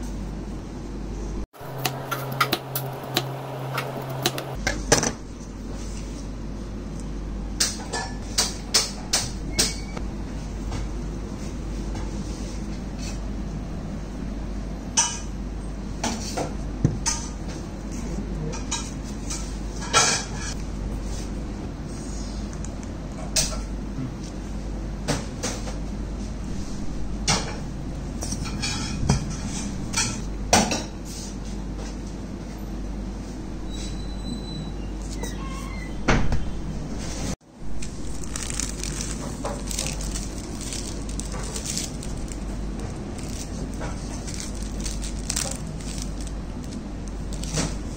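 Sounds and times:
steady low hum: 0.0 - 33.6, 36.5 - 47.9
plastic film crinkling: 37.7 - 47.9.

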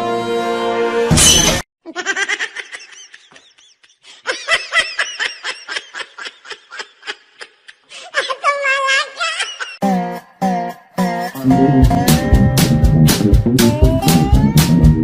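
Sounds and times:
background music: 0.0 - 1.3, 9.8 - 15.0
person laughing: 1.8 - 9.8.

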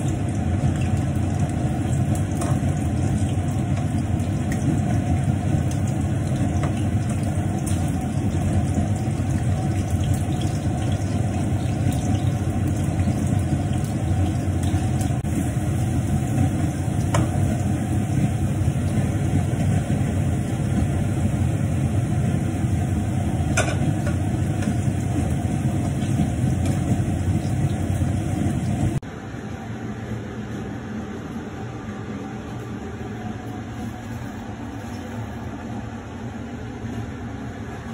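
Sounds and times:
food sizzling in oil: 0.0 - 29.0
range hood fan rumble: 0.0 - 37.9.

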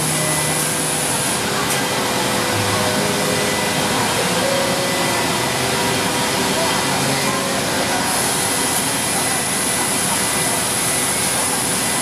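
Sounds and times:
thin high whine: 0.0 - 12.0.

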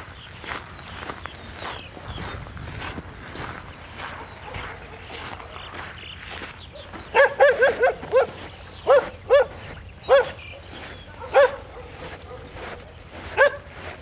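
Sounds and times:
dog barking: 4.1 - 5.6, 6.7 - 13.9.

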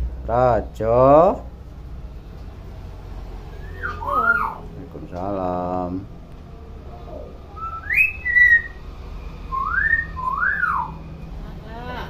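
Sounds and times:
myna whistling: 3.5 - 4.6, 7.5 - 11.2.

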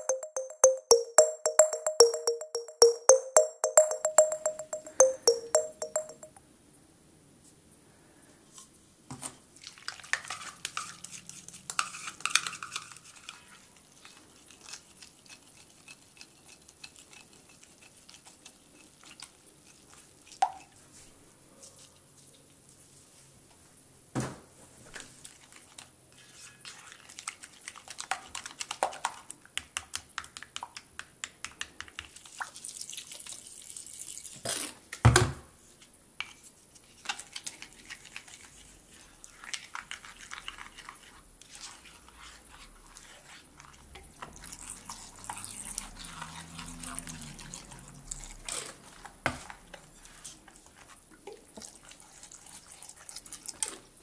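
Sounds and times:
spoon tapping glass bowl: 0.0 - 6.3.

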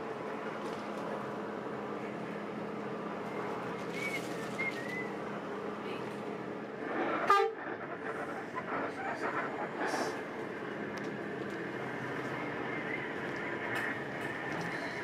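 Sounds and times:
coach engine running: 0.0 - 15.0
road noise: 0.0 - 15.0
loud multi-tone horn blast: 7.2 - 7.6.

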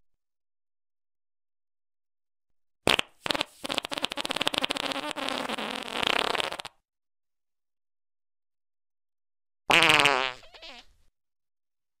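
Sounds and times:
fart sound effect: 2.9 - 6.8, 9.7 - 10.9.

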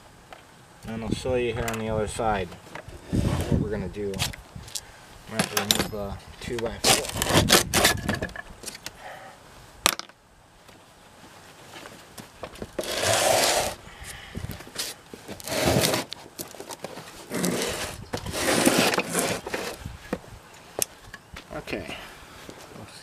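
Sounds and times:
generator scraping on mat: 3.0 - 3.7, 6.8 - 8.1, 12.7 - 13.8, 14.6 - 19.9.

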